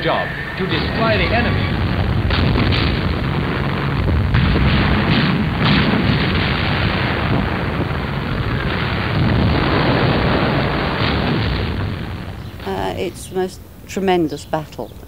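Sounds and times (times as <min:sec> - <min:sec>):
artillery fire rumble: 0:00.0 - 0:13.8
shell explosions: 0:00.0 - 0:14.1.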